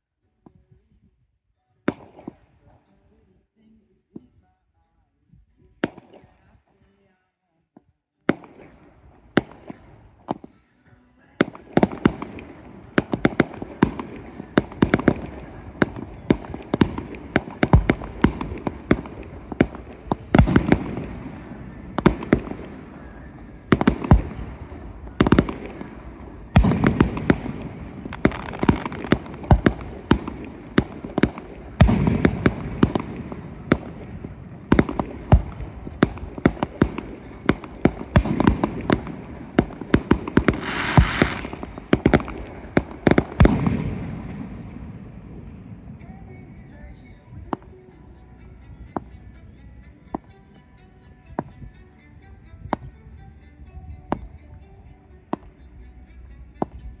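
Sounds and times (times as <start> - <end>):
fireworks bangs: 11.4 - 48.0
fireworks crackling: 11.4 - 50.8.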